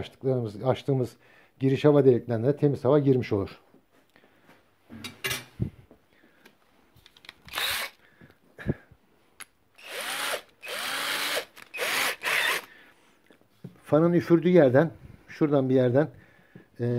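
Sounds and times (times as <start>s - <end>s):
cordless drill motor whine: 7.5s - 8.0s, 9.8s - 12.7s.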